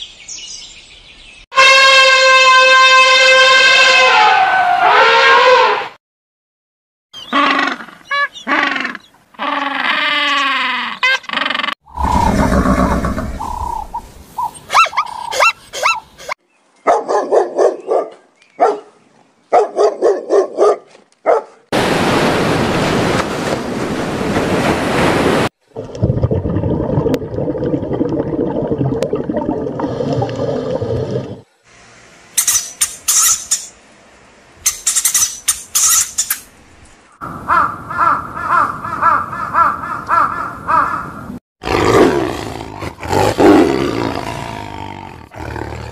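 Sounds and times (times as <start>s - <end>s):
noisy animal sound: 7.2s - 16.4s
repeated pitched animal calls: 7.2s - 16.4s, 37.5s - 41.1s
high chirping bursts: 13.2s - 16.2s.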